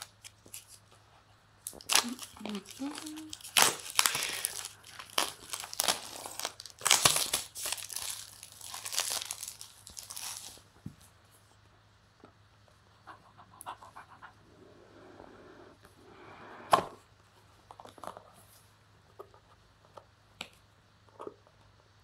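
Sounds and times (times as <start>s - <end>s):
plastic wrap crinkling and tearing: 0.0s - 1.0s, 1.6s - 10.7s.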